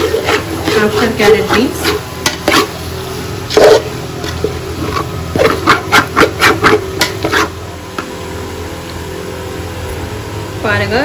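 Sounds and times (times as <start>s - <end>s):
metal spatula scraping a pot: 0.0s - 2.8s, 3.5s - 7.6s.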